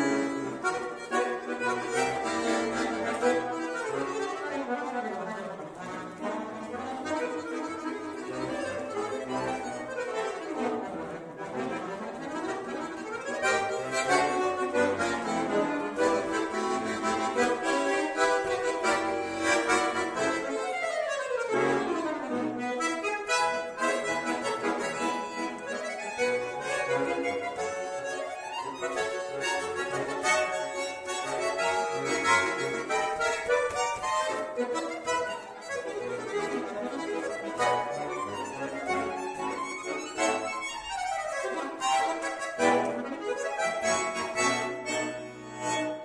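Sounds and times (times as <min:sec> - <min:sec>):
button accordion playing: 0:00.0 - 0:46.0.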